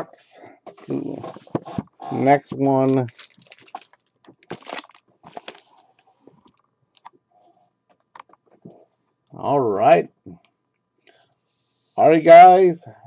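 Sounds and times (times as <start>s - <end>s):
card wrappers crinkling: 2.6s - 7.1s.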